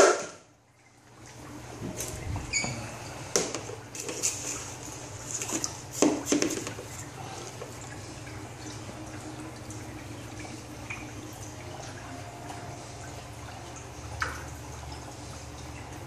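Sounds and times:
water trickling and splashing: 0:00.0 - 0:16.0
steady low hum: 0:00.4 - 0:06.0, 0:06.7 - 0:16.0.

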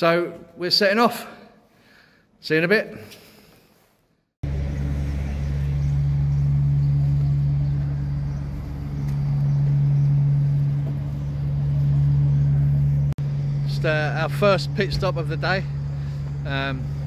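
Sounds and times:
engine idling hum: 0:04.4 - 0:17.0.

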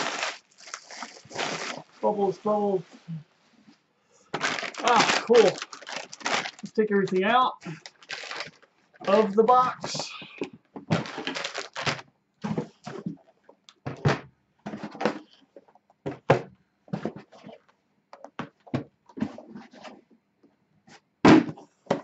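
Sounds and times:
anti-static bag crinkling: 0:00.0 - 0:02.1, 0:04.4 - 0:09.7, 0:10.9 - 0:12.1
box thumping down: 0:21.2 - 0:22.0.

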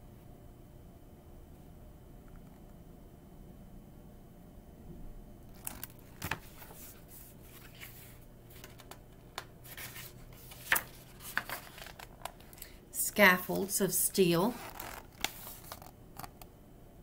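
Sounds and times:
book pages turning: 0:05.5 - 0:12.5, 0:14.4 - 0:16.4.

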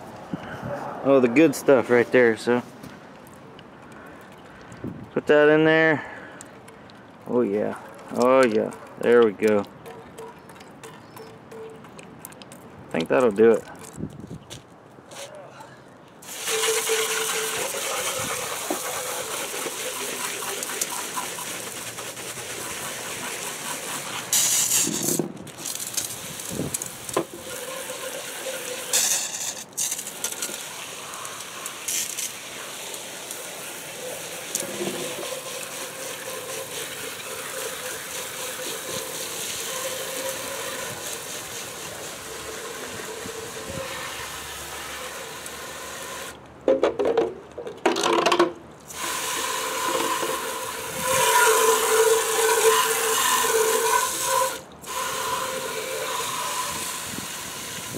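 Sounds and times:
hose water spray hissing: 0:16.2 - 0:46.4, 0:48.9 - 0:57.9
water splashing on metal: 0:16.2 - 0:46.4, 0:48.8 - 0:57.9.

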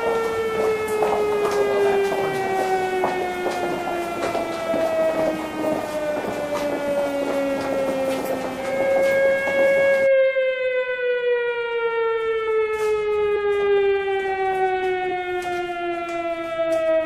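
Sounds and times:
rumbling background noise: 0:00.0 - 0:10.1
air-raid siren wailing: 0:00.0 - 0:17.0.

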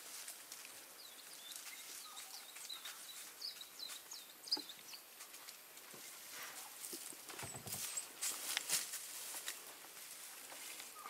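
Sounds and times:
small bird chirping: 0:01.0 - 0:05.1.

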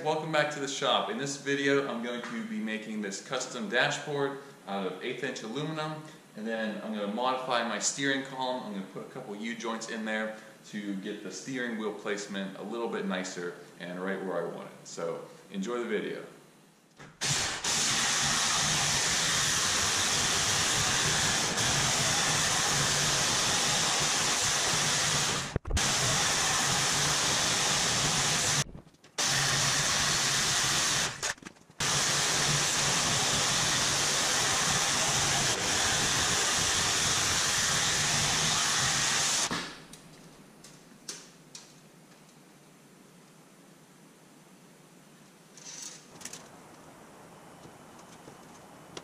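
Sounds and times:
jigsaw cutting metal sheet: 0:17.2 - 0:39.6.

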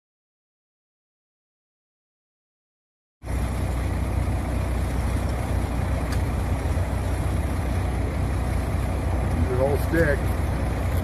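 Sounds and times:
truck engine running: 0:03.2 - 0:11.0.

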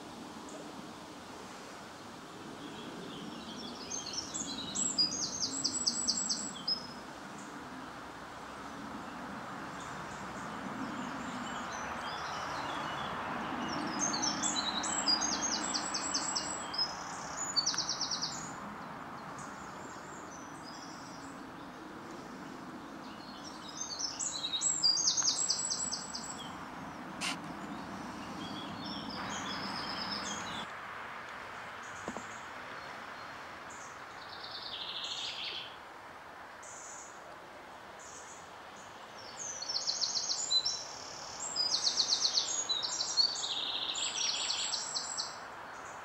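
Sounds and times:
songbirds singing: 0:00.0 - 0:30.7, 0:31.4 - 0:35.9, 0:36.6 - 0:46.0
outdoor background noise: 0:00.0 - 0:46.0
rapid high trilled birdsong: 0:23.1 - 0:30.7.

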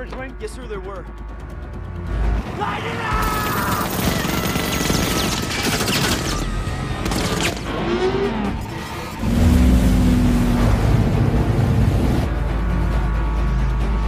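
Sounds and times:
dramatic orchestral score: 0:00.0 - 0:14.0
machine-gun fire: 0:03.2 - 0:07.7.

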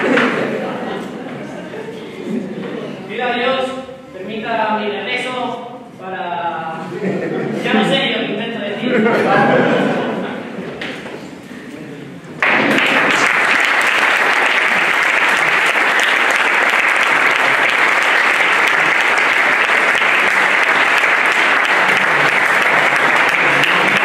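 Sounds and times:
audience applause: 0:12.4 - 0:24.0.

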